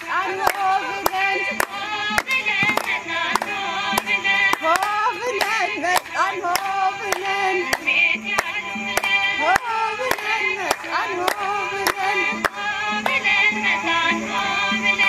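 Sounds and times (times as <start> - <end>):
steady handclaps: 0.0 - 13.3
person singing a song: 0.0 - 15.0.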